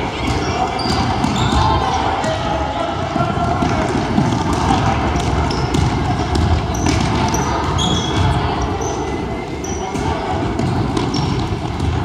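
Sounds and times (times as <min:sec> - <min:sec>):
sneakers squeaking: 0:00.0 - 0:12.0
spectators chattering: 0:00.0 - 0:12.0.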